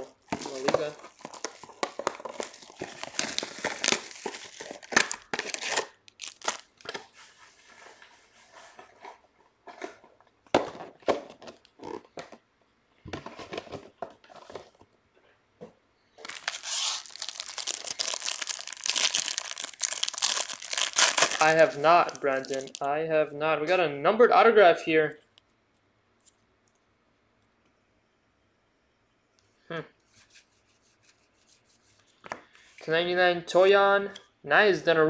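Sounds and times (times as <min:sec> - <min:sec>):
card pack wrappers crinkling and tearing: 0:00.0 - 0:07.1, 0:16.2 - 0:22.9
cards clicking and rustling: 0:00.2 - 0:07.1, 0:16.2 - 0:22.8.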